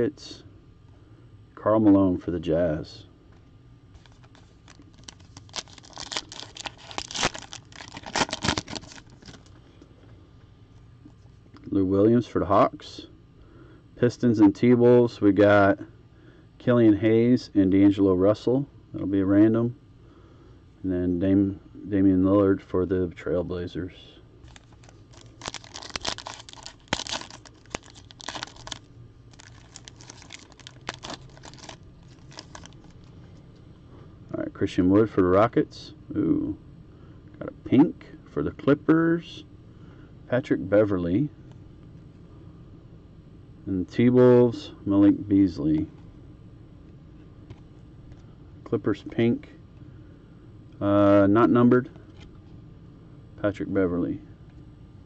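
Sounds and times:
wrapper tearing and crinkling: 0:04.0 - 0:09.5, 0:24.4 - 0:33.1.

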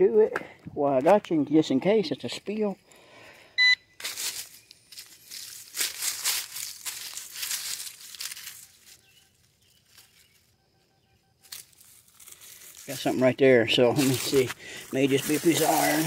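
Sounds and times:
pinpointer electronic beep: 0:03.6 - 0:03.9, 0:10.5 - 0:11.5
dry leaves crackling and rustling: 0:04.0 - 0:10.6, 0:11.4 - 0:16.0.

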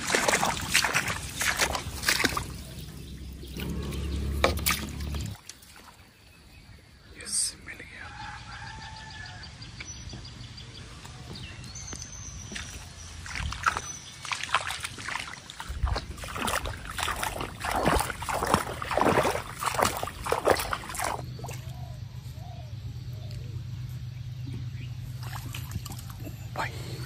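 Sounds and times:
pond water splashing: 0:00.0 - 0:06.3, 0:12.5 - 0:22.0, 0:25.0 - 0:27.0
low steady hum: 0:15.8 - 0:27.0.

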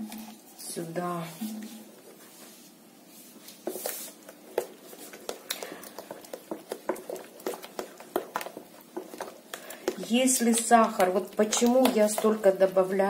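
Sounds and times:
batter slapping and squelching: 0:03.3 - 0:13.0.

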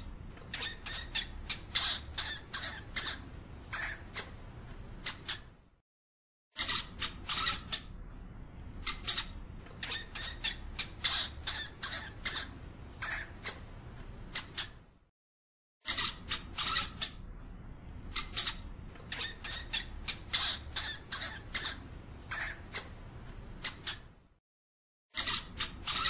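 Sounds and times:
hamster squeaking: 0:00.0 - 0:04.4, 0:05.0 - 0:05.5, 0:06.6 - 0:08.0, 0:08.8 - 0:13.7, 0:14.3 - 0:14.8, 0:15.8 - 0:17.2, 0:18.1 - 0:23.0, 0:23.6 - 0:24.1, 0:25.1 - 0:26.0.

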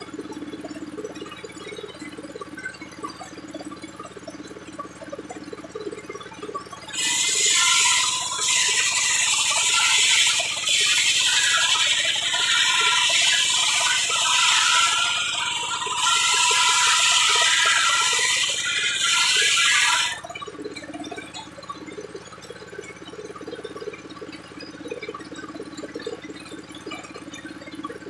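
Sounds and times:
circular saw cutting log: 0:06.9 - 0:20.2
saw running freely: 0:06.9 - 0:20.2.

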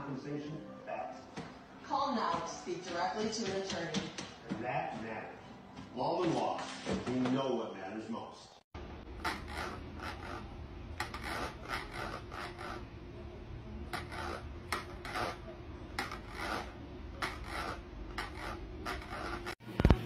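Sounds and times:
cat claws scratching plastic bowl: 0:16.0 - 0:19.6.

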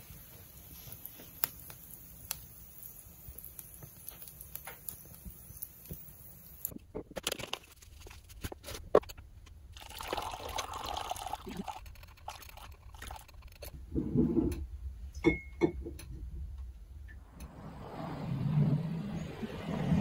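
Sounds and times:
water pouring into coffee filter: 0:09.8 - 0:13.4.

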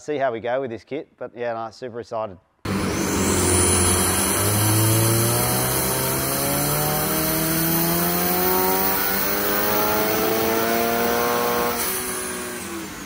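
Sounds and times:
car engine revving under load: 0:02.7 - 0:13.0.

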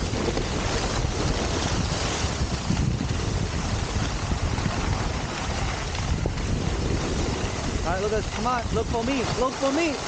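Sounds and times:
sliding over snow: 0:00.0 - 0:10.0
wind buffeting microphone: 0:00.0 - 0:10.0.

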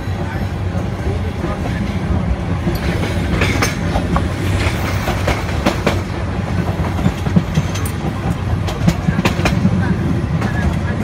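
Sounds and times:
train clacks and clicks: 0:00.0 - 0:11.0
train wheels rumbling on track: 0:00.0 - 0:11.0.

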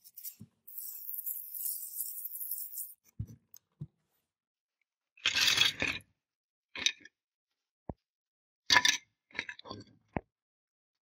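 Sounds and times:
metal parts scraping: 0:00.0 - 0:03.0.

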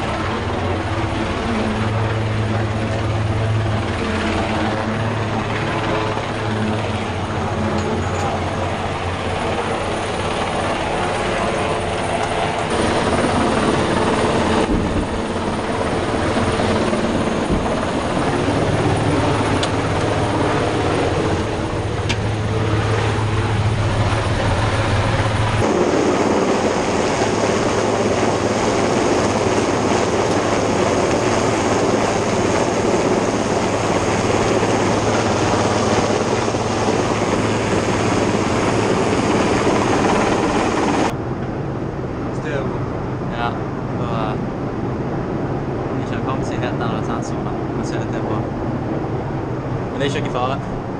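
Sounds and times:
helicopter rotor and engine: 0:00.0 - 0:50.9
rush of rotor downwash: 0:00.0 - 0:50.9.

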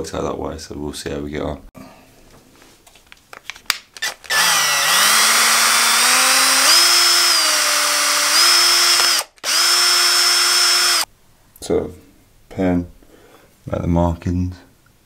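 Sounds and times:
cordless drill whining: 0:04.0 - 0:11.1.

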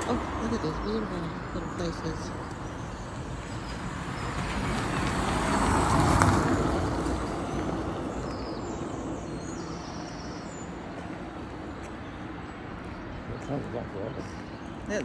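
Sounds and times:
car driving past: 0:03.7 - 0:09.6.

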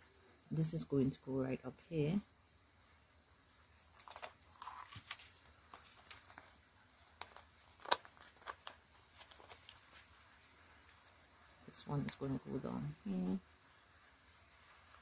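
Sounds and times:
paper stickers crinkling: 0:03.9 - 0:10.1.

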